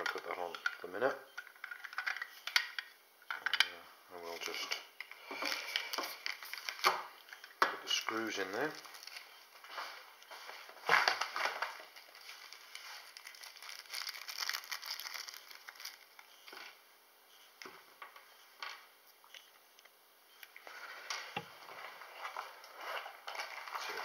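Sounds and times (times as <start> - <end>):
paper wrapping crinkling: 4.2 - 9.9, 10.6 - 16.8, 20.8 - 24.0.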